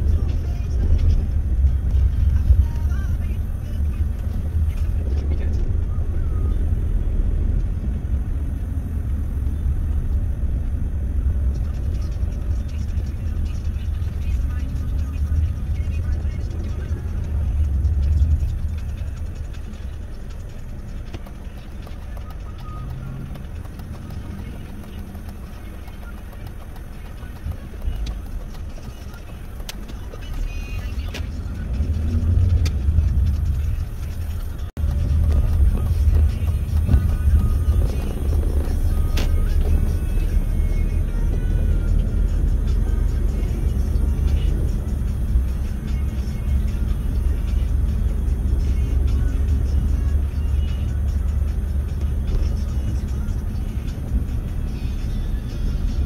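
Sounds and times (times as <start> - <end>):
car driving from inside cabin: 0.0 - 56.0.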